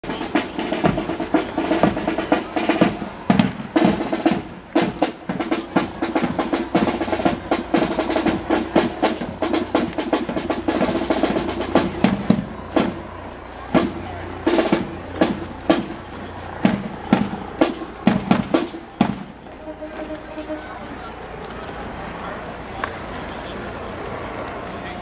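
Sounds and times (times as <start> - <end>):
snare drum strokes and rolls: 0.0 - 20.9
tuba and saxophones: 19.5 - 21.2.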